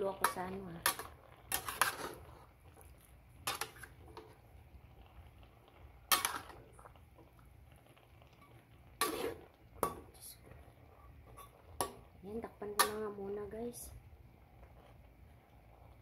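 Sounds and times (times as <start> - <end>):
faint steady background noise: 0.0 - 16.0
spatula scraping a wok: 0.1 - 4.4, 6.1 - 6.9, 8.4 - 10.1, 10.9 - 12.0.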